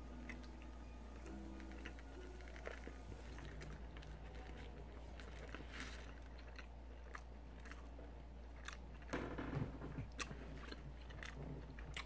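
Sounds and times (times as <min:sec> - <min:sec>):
person chewing: 0:00.0 - 0:09.2, 0:09.9 - 0:12.0
low steady hum: 0:00.0 - 0:12.0.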